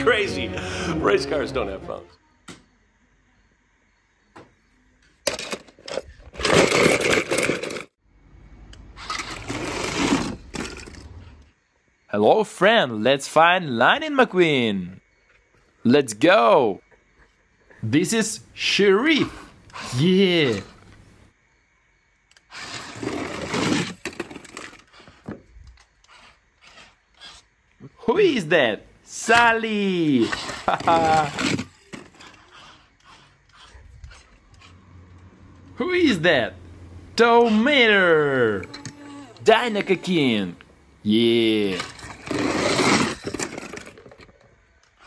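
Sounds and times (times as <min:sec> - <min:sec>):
toy cars clattering: 0:05.1 - 0:08.0, 0:09.0 - 0:11.5, 0:19.7 - 0:21.0, 0:22.3 - 0:27.4, 0:30.2 - 0:33.7, 0:38.4 - 0:40.2, 0:41.3 - 0:45.0
toy cars rolling down plastic slide: 0:05.2 - 0:08.0, 0:09.0 - 0:11.2, 0:19.7 - 0:20.8, 0:22.3 - 0:27.0, 0:29.2 - 0:33.2, 0:41.4 - 0:45.0.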